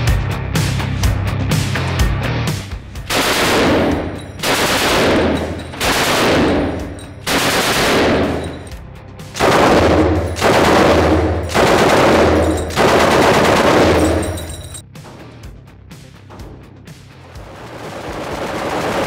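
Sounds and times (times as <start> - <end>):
machine gun firing bursts: 3.1 - 8.7, 9.4 - 14.6, 17.6 - 19.0.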